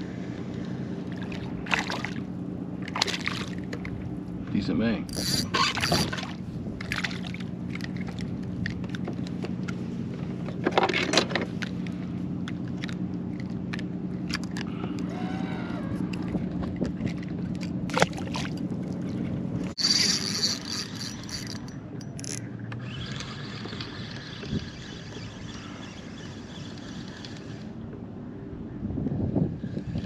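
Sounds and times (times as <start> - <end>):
electric motor humming: 5.1 - 6.2, 19.8 - 27.8.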